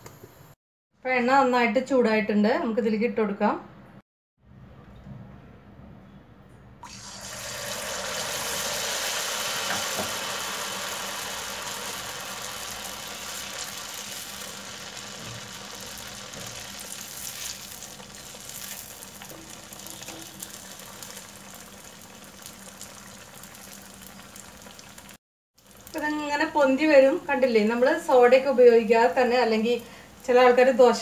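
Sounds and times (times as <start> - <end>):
banana pieces sizzling in oil: 6.9 - 31.0.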